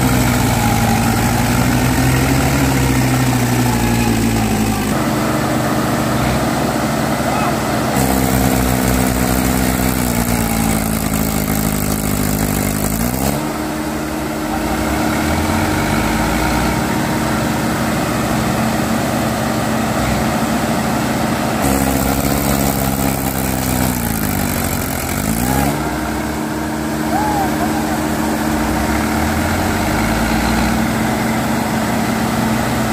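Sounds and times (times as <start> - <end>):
tractor engines under load: 0.0 - 32.9.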